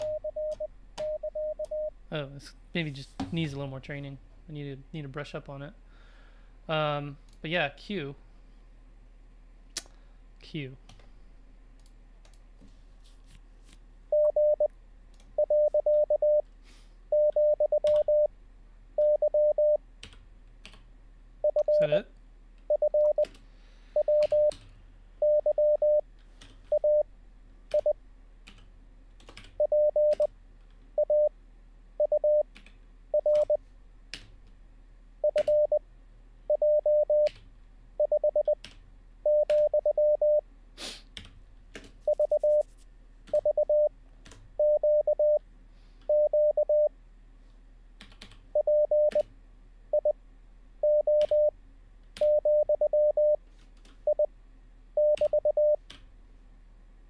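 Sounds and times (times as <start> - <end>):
morse code tone: 0.0 - 1.9, 14.1 - 14.7, 15.4 - 16.4, 17.2 - 18.3, 19.0 - 19.8, 22.7 - 23.2, 24.0 - 24.5, 25.2 - 26.0, 29.6 - 30.3, 31.0 - 31.3, 36.5 - 37.3, 39.3 - 40.4, 42.1 - 42.7, 43.4 - 43.9, 44.6 - 45.4, 46.1 - 46.9, 48.6 - 49.2, 50.8 - 51.5, 52.2 - 53.4, 55.0 - 55.8.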